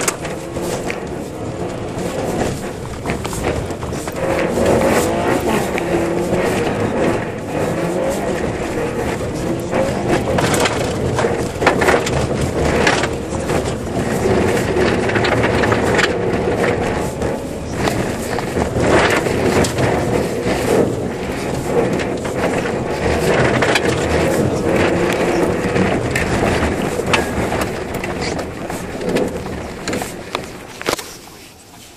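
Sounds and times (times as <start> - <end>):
knocks and thumps: 0.0 - 31.1
car engine under load: 0.0 - 31.9
road noise: 0.0 - 31.9
tyres crunching over snow: 0.0 - 31.9.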